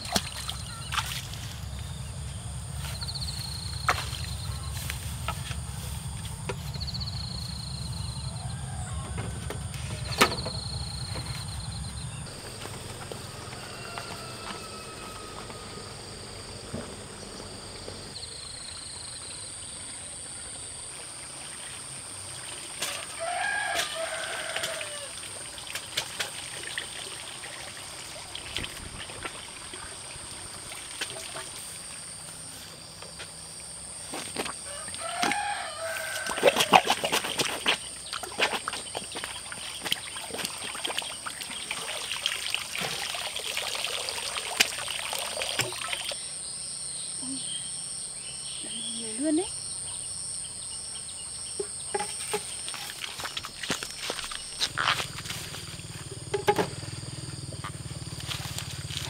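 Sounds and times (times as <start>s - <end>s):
rooster crowing: 8.0s - 10.0s, 13.0s - 16.2s, 22.9s - 25.2s, 34.6s - 36.8s.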